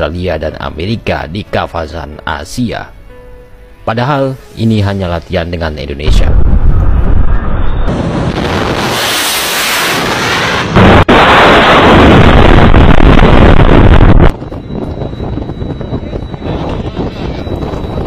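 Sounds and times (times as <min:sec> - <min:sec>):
wind on microphone: 0:06.2 - 0:18.0
missile launch rocket blast: 0:06.3 - 0:14.3.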